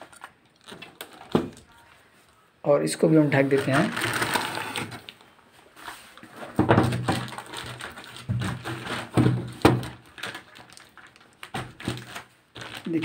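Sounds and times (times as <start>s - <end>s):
plastic sheet rustling and crinkling: 2.9s - 13.0s.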